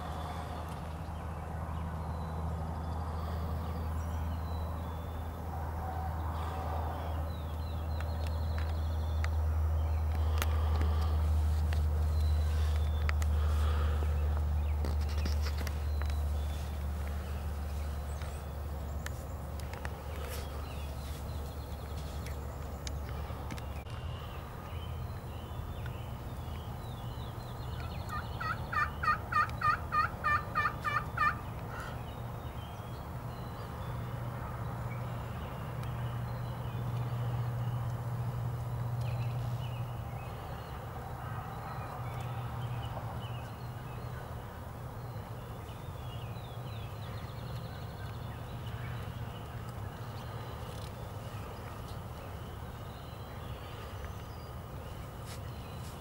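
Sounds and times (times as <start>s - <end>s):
turkey yelps: 28.1s - 31.4s.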